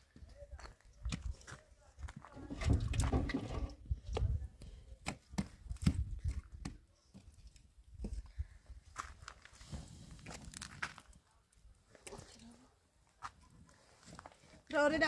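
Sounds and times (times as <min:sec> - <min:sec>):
firewood knocking and clattering: 0:02.4 - 0:04.3.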